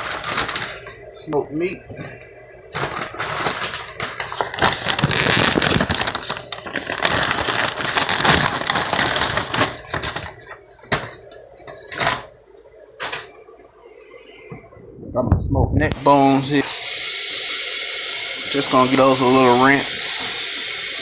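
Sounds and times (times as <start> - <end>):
plastic packaging crinkling: 0.0 - 12.4.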